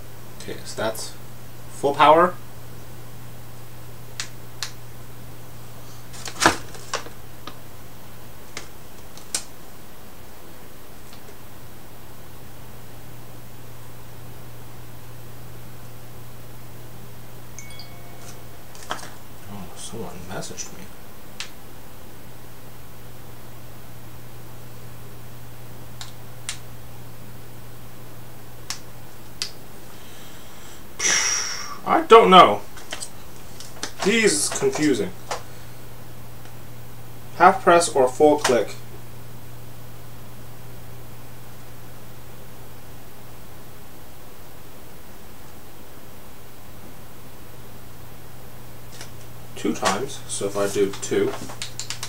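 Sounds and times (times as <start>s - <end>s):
low hum: 17.4s - 21.0s.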